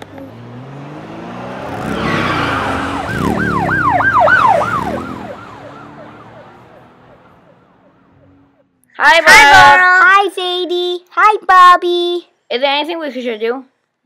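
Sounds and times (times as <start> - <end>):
car going by: 0.0 - 8.8
police siren yelping wail: 1.4 - 8.4.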